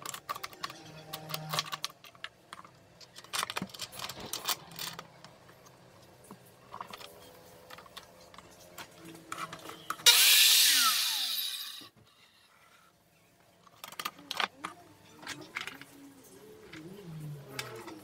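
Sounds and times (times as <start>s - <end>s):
circular saw whirring: 10.0s - 11.9s.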